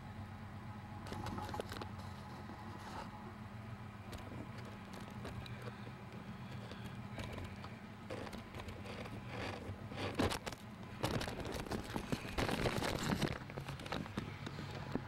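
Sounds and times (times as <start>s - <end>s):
boat motor running: 4.1s - 15.0s.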